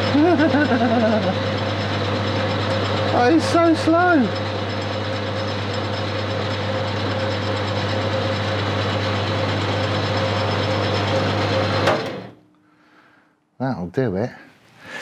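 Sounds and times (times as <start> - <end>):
lathe running: 0.0 - 12.3.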